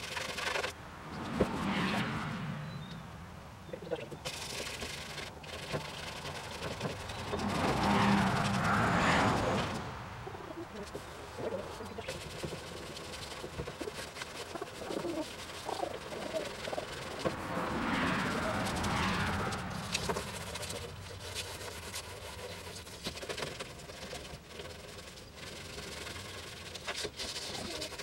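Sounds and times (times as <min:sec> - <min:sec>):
rushing noise: 0:00.7 - 0:03.6, 0:05.1 - 0:11.8, 0:15.5 - 0:22.4
sandpaper scratching on metal: 0:04.1 - 0:09.8, 0:10.5 - 0:28.0.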